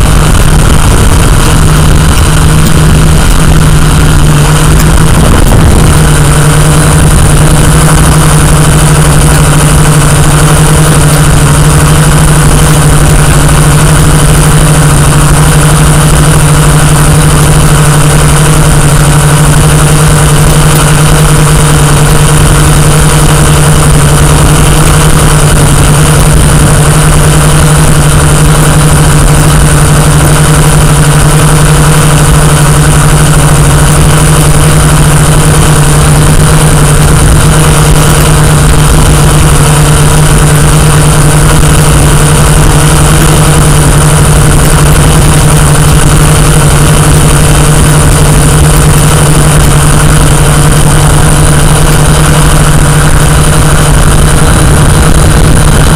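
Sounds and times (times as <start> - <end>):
drone motors humming: 0.0 - 55.9.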